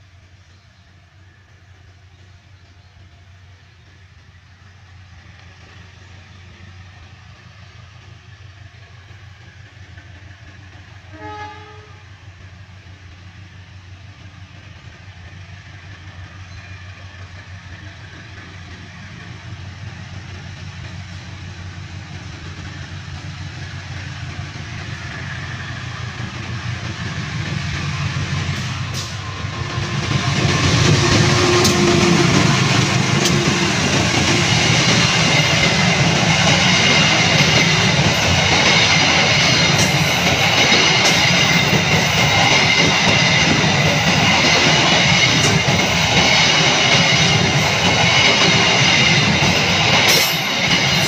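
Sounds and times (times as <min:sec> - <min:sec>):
locomotive engine rumble: 0:00.0 - 0:51.0
train horn blast: 0:11.1 - 0:12.2, 0:30.5 - 0:33.8.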